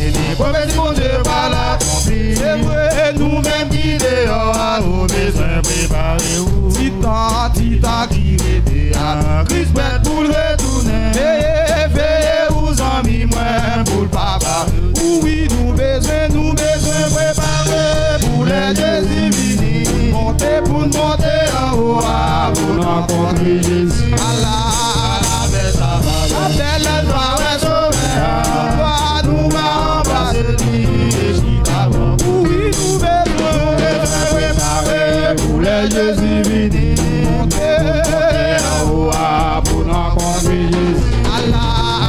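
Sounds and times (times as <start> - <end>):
drum kit beat: 0.0 - 42.0
male vocal group singing gospel: 0.0 - 42.0.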